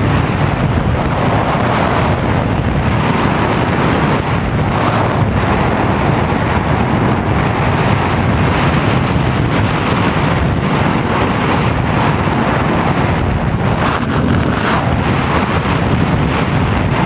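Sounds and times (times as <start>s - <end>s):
wind rushing over microphone: 0.0s - 17.0s.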